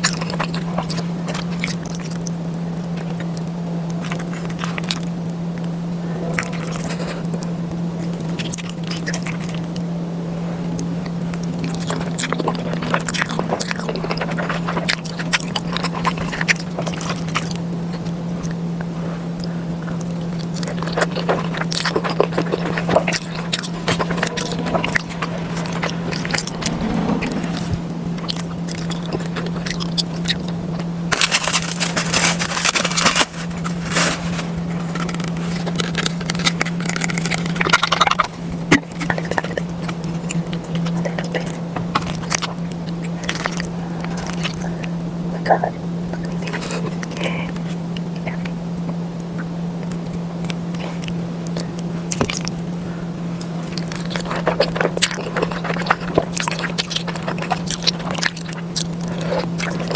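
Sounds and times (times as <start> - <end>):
wet chewing: 0.0 - 5.7, 10.8 - 26.9, 34.9 - 44.9, 53.4 - 59.9
steady low hum: 0.0 - 59.9.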